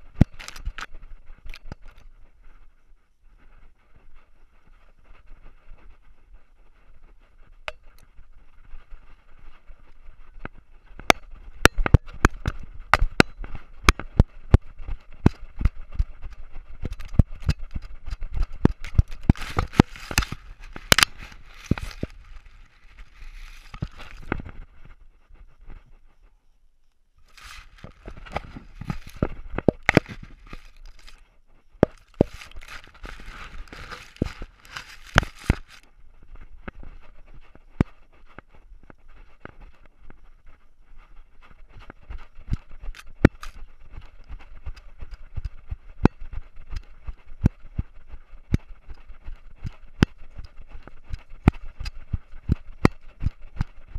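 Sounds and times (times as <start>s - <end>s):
camera housing knocking and rattling: 0.1s - 0.9s, 11.0s - 15.8s, 16.8s - 22.2s, 27.4s - 31.1s, 31.8s - 35.8s.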